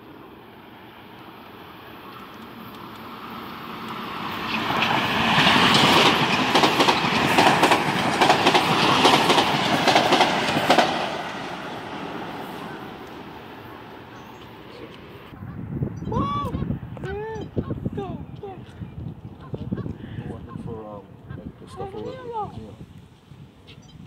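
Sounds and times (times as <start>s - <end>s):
train passing at speed: 0.0s - 15.8s
wheels clattering over rail joints: 2.0s - 15.0s.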